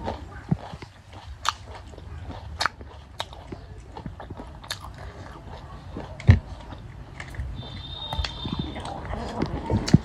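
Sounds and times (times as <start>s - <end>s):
close chewing and biting: 0.0s - 10.0s
wet mouth clicks and smacks: 0.7s - 1.7s, 2.6s - 5.0s.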